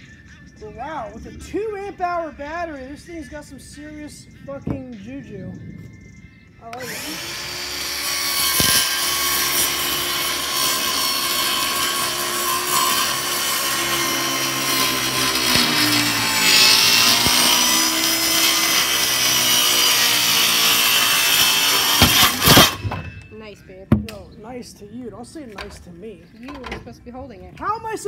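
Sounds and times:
circular saw cutting plywood: 6.7s - 23.1s.

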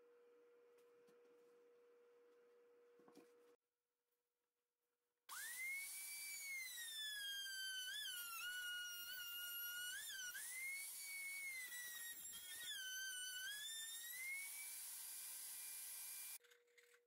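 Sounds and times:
router whining: 5.3s - 16.4s.

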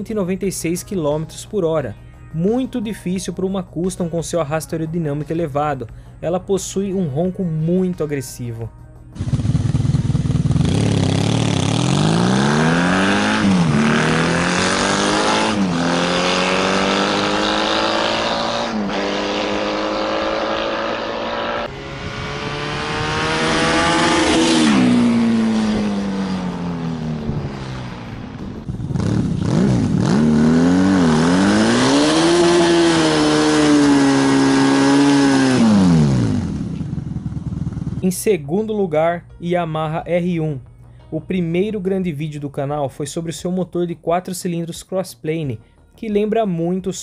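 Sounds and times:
motorcycle engine accelerating: 9.2s - 38.3s.

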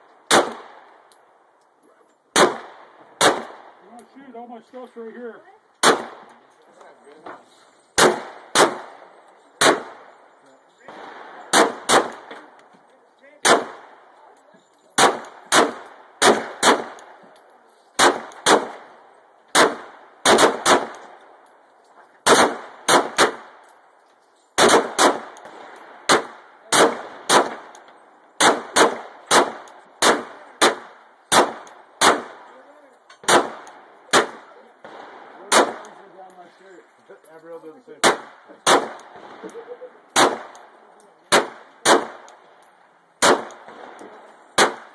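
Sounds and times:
pistol shots with echo: 0.2s - 1.1s, 2.3s - 4.1s, 5.8s - 6.5s, 8.0s - 12.6s, 13.4s - 14.2s, 15.0s - 17.3s, 18.0s - 21.5s, 22.2s - 23.9s, 24.6s - 36.2s, 38.0s - 44.9s.

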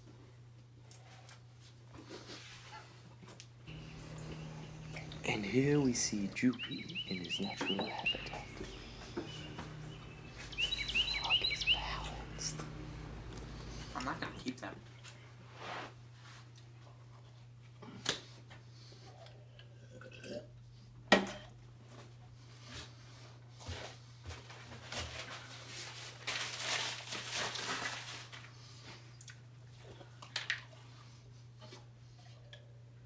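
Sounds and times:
low hum: 3.7s - 14.6s
rustling: 24.5s - 28.5s.

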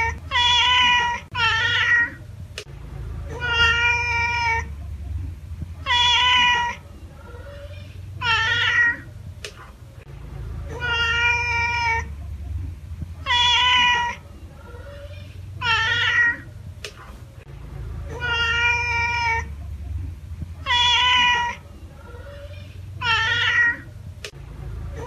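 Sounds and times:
cat meowing: 0.0s - 2.2s, 3.3s - 4.7s, 5.8s - 9.1s, 10.7s - 12.1s, 13.2s - 16.5s, 18.1s - 19.5s, 20.6s - 23.9s
low steady rumble: 0.0s - 25.0s.

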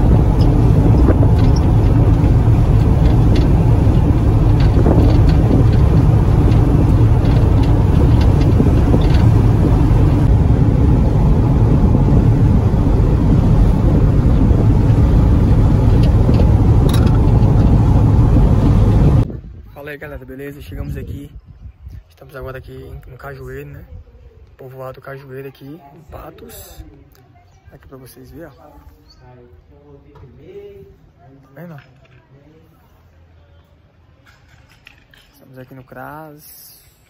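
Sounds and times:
car cabin road rumble: 0.0s - 19.3s
faint rattles: 0.0s - 19.3s.

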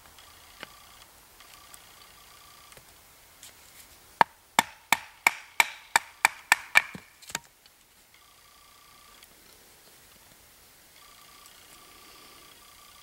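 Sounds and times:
baton knocking on knife blade: 4.2s - 7.1s.

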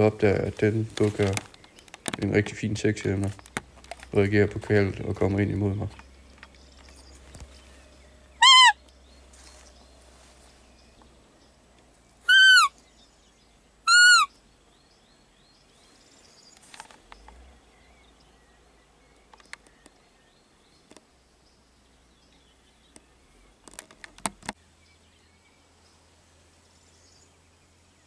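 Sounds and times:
squeaky deer call notes: 8.3s - 8.8s, 12.3s - 12.8s, 13.9s - 14.4s.

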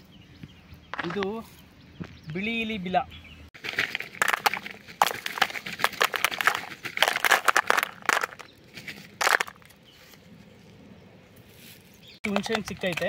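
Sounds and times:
dry leaves and pods crunching: 3.6s - 13.0s.

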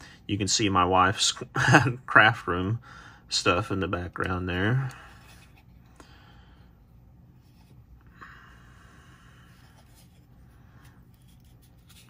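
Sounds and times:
plastic compass handling: 9.5s - 12.0s.

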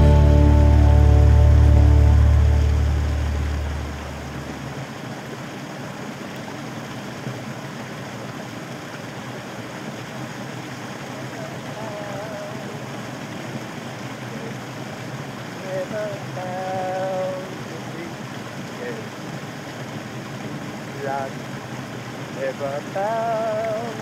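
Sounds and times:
music: 0.0s - 3.8s
water running over rocks: 0.0s - 24.0s.

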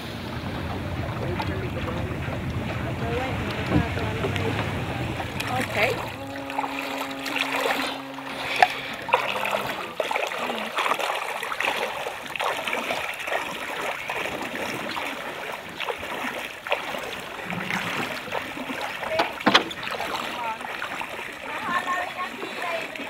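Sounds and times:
low steady hum: 0.0s - 12.1s
feet splashing in water: 0.0s - 23.0s.

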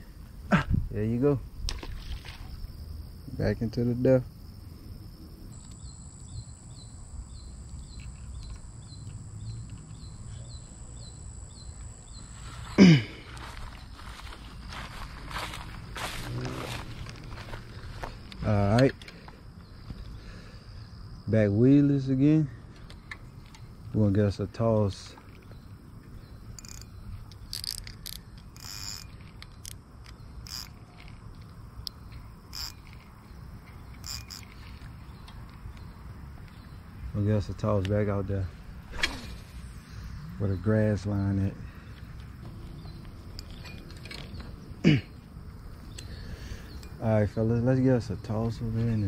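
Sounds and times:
insects buzzing: 0.0s - 49.0s
regular chirp: 5.2s - 21.2s, 22.2s - 49.0s
fishing reel clicks and scrapes: 26.6s - 31.2s, 32.5s - 33.0s, 33.9s - 34.8s.

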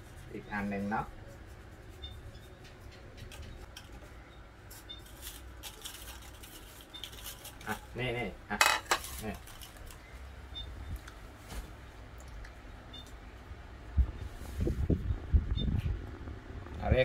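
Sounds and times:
paper slips rattling in ceramic bowl: 5.0s - 8.0s.

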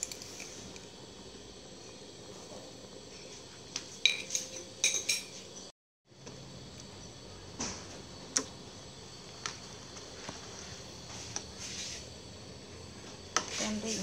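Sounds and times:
metal utensils clinking on cookware: 4.0s - 5.5s.

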